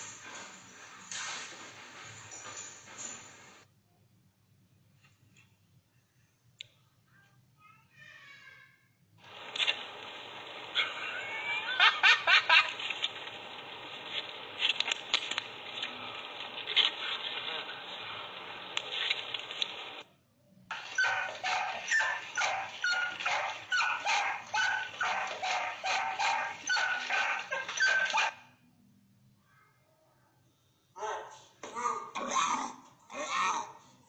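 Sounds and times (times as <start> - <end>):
small dog barking: 20.7 - 28.4.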